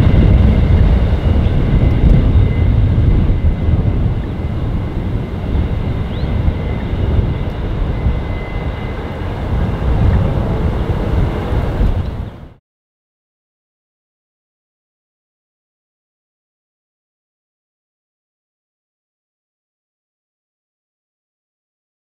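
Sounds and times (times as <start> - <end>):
faint high whine: 0.0 - 12.6
train wheels rumbling on track: 0.0 - 12.6.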